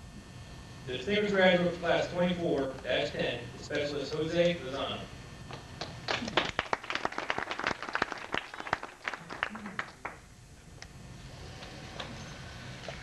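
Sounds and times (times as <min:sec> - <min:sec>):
audience applause: 0:05.8 - 0:10.2.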